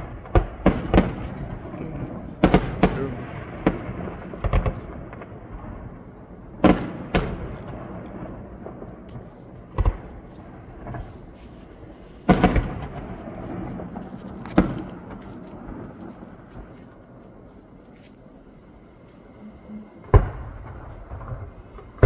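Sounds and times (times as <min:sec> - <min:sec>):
firework shells bursting: 0:00.0 - 0:05.4, 0:08.6 - 0:17.0.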